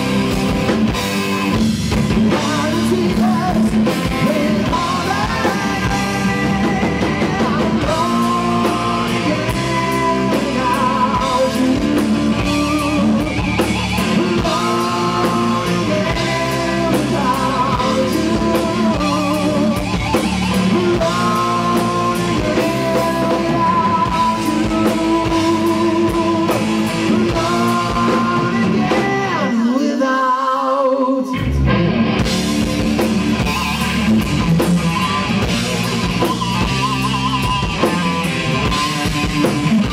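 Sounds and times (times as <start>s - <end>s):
rock band playing live: 0.0s - 39.9s
person singing long notes: 2.3s - 13.5s, 14.1s - 31.6s.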